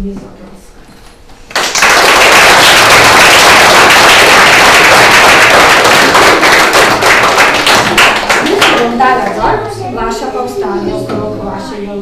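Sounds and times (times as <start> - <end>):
audience applauding: 1.5 - 9.4.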